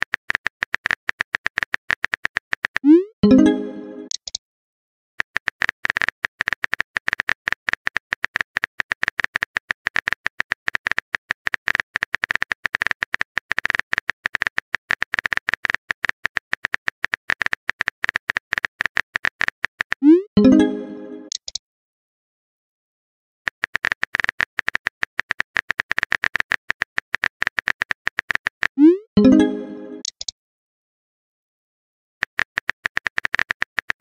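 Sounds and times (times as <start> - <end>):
phone keyboard tapping clicks: 21.3 - 21.6, 23.5 - 28.8, 30.0 - 30.3, 32.2 - 34.0.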